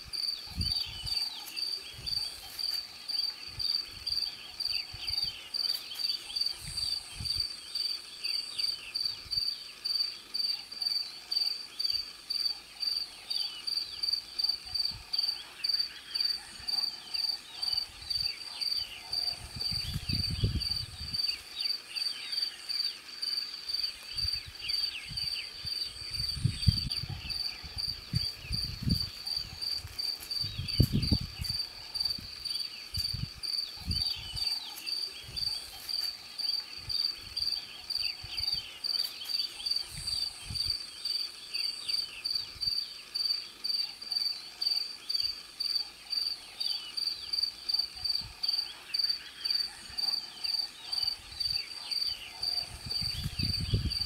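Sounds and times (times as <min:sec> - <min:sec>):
wind buffeting microphone: 0:00.0 - 0:01.2, 0:19.3 - 0:21.4, 0:24.1 - 0:34.4, 0:52.4 - 0:54.0
cricket chirping: 0:00.0 - 0:54.0.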